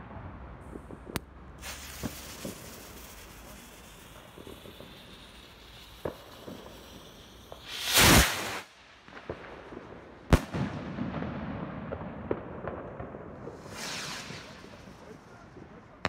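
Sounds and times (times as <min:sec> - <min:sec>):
firework crackling: 0:00.7 - 0:11.1, 0:12.2 - 0:16.0
firework bang: 0:00.7 - 0:15.4
firework rocket launch rush: 0:01.0 - 0:09.4, 0:13.4 - 0:16.0.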